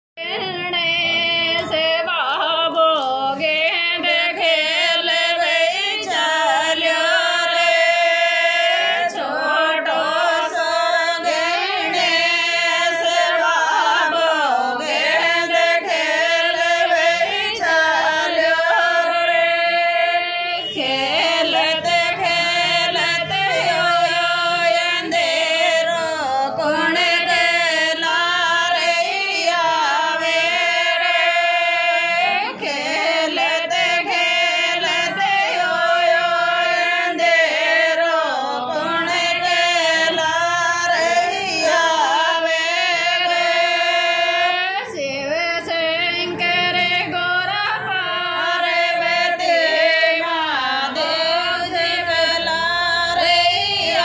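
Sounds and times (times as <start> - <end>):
woman singing: 0.2 - 54.0.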